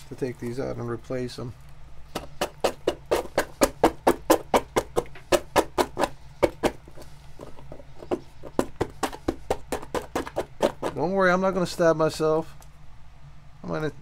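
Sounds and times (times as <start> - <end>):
rapid sharp knocks: 2.1 - 11.1.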